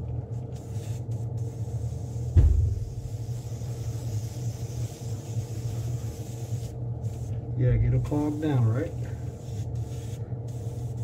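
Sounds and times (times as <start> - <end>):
air compressor humming: 0.0 - 11.0
thump: 2.3 - 3.1.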